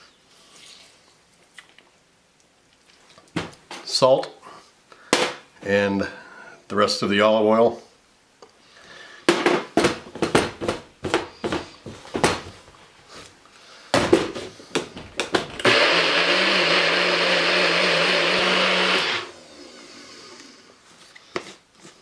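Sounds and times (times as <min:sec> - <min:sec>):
blender motor humming: 0:15.2 - 0:19.6.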